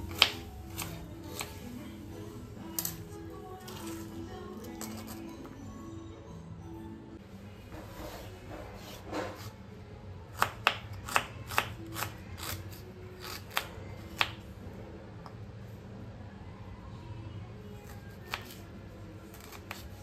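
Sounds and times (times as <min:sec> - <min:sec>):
knife chopping on wooden board: 0:00.1 - 0:01.5.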